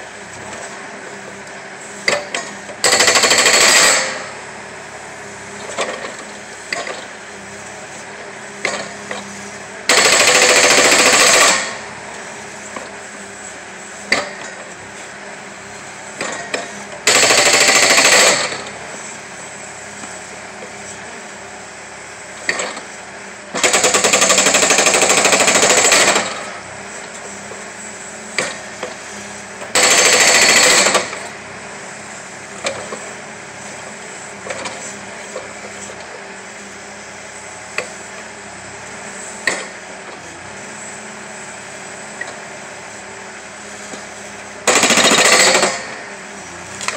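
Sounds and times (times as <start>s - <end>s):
machine engine running: 0.0s - 46.9s
hydraulic breaker hammering: 2.0s - 4.4s, 8.6s - 12.9s, 14.1s - 14.7s, 16.2s - 18.8s, 23.5s - 26.6s, 29.6s - 31.4s, 39.4s - 39.8s, 44.6s - 46.2s.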